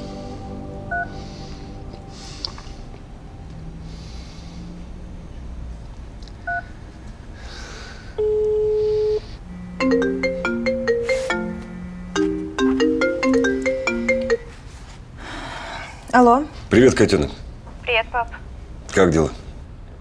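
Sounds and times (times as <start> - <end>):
phone ringtone melody: 8.2 - 14.6
steady ringback tone: 8.2 - 14.6.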